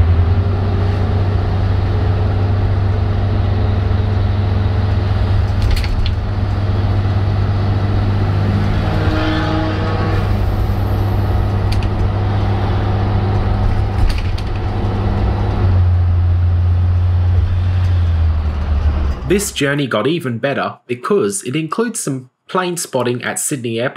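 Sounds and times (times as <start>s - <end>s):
rising whine: 0.0s - 19.5s
diesel bus engine drone: 0.0s - 19.6s
rattles: 13.7s - 15.3s.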